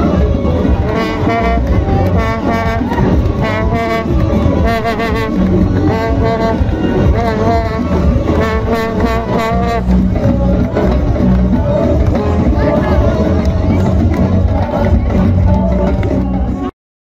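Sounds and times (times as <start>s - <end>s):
brass horns holding long notes: 0.0s - 16.0s
crowd talking: 0.0s - 16.7s
street band music: 0.0s - 16.7s.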